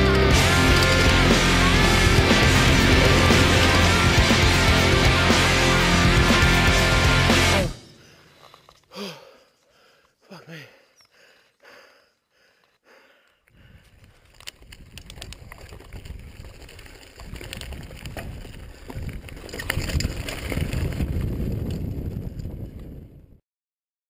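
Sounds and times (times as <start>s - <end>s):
bike clicks and rattles: 0.0s - 2.6s, 13.4s - 23.0s
wind rumbling on microphone: 13.6s - 23.4s.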